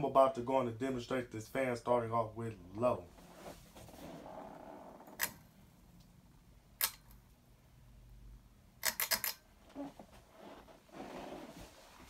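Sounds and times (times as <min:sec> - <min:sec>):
pull-chain switch clicking: 0:06.8 - 0:07.2, 0:08.8 - 0:09.4.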